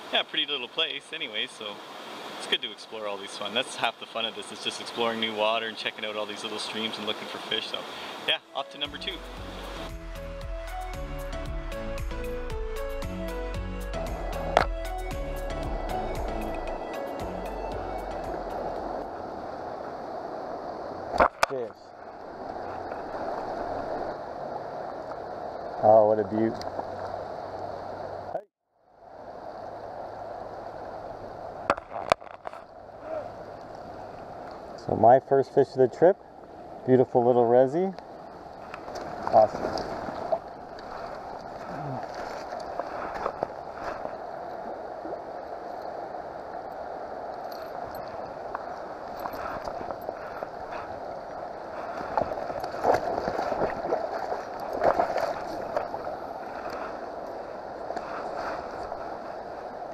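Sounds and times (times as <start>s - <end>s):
river water rushing over rocks: 0.0s - 10.0s
river current over rocks: 0.0s - 11.2s, 13.9s - 28.3s, 28.9s - 35.1s, 36.2s - 59.9s.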